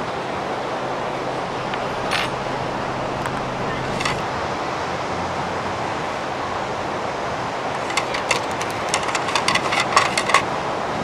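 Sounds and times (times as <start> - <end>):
wind: 0.0 - 11.0
sharp clicks and clinks: 7.8 - 10.5.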